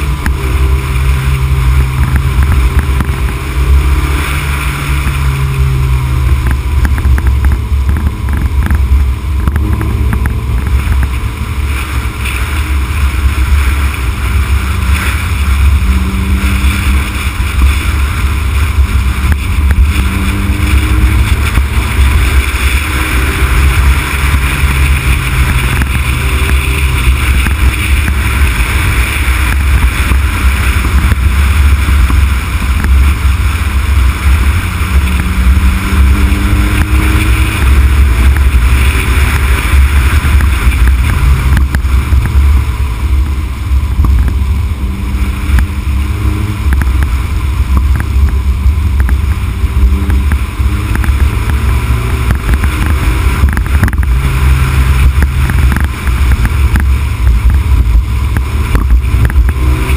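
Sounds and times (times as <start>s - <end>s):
faint car engine: 0.0s - 59.9s
wind rumble on microphone: 0.0s - 59.9s.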